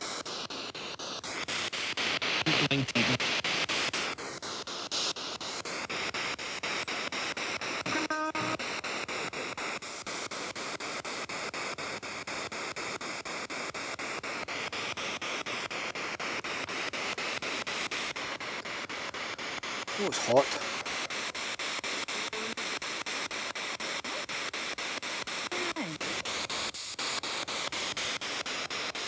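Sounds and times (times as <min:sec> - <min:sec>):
chopped radio static hiss: 0:00.0 - 0:29.0
snatch of broadcast sound: 0:07.9 - 0:08.6.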